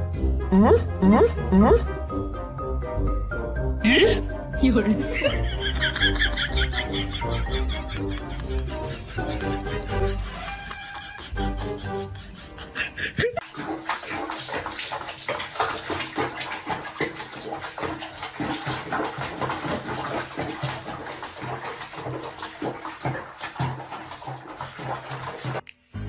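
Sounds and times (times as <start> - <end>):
water splashing in basin: 13.4 - 25.6.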